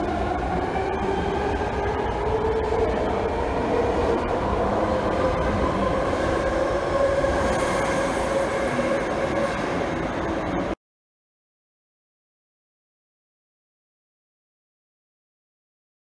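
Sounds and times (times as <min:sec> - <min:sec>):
wheels rumbling on rail: 0:00.0 - 0:10.8.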